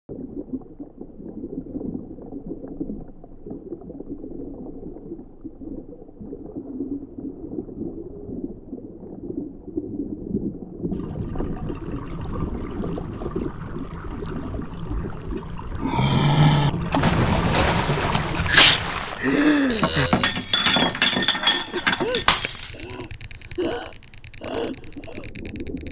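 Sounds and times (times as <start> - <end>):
low watery gurgling rumble: 0.1 - 20.2.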